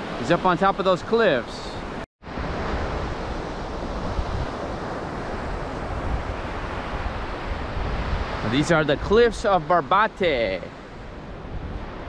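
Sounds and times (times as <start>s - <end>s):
ocean surf on beach: 0.0s - 12.0s
wind buffeting microphone: 2.3s - 9.6s, 10.7s - 12.0s.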